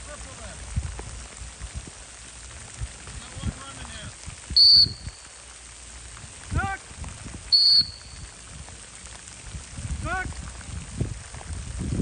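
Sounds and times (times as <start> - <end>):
high whistle blasts: 4.6 - 5.2, 7.5 - 8.3.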